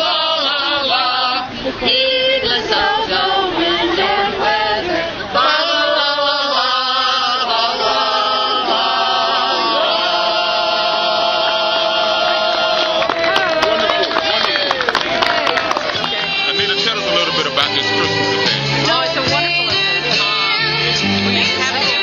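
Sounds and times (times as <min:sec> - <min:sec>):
group singing unaccompanied: 0:00.0 - 0:14.2.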